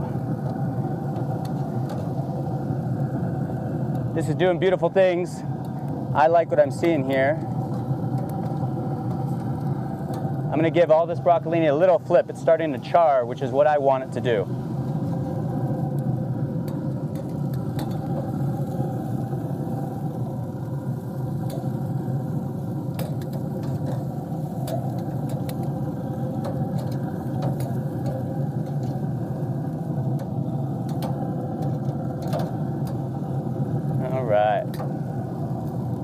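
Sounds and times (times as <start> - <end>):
metal tongs clicking on grill grate: 7.7 - 10.3, 16.0 - 18.4, 21.4 - 21.8, 22.9 - 25.8, 26.4 - 29.0, 30.1 - 33.1
motor hum: 13.7 - 36.0.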